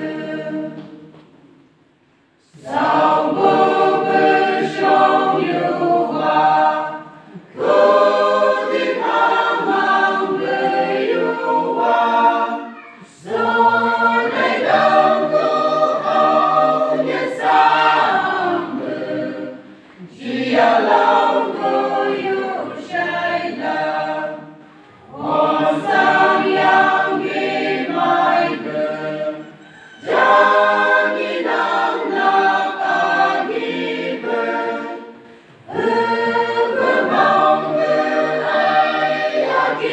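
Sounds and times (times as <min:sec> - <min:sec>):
choir singing in parts: 0:00.0 - 0:39.9.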